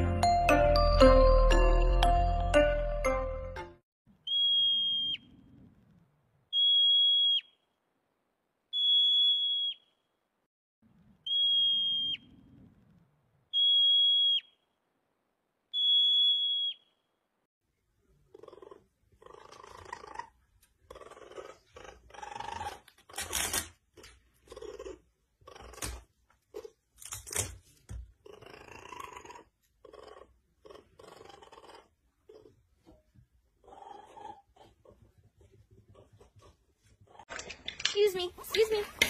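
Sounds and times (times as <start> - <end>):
raccoon purring and churring: 18.0 - 37.4.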